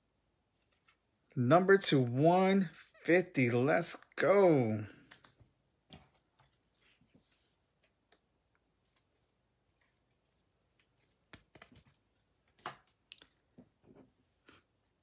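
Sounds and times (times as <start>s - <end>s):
cards clicking and rustling: 10.8s - 13.3s.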